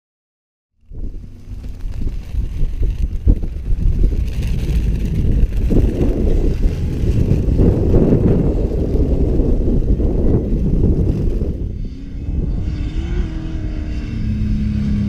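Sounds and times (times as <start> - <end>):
wind buffeting microphone: 0.8 - 15.0
distant off-road vehicle engine: 10.0 - 15.0.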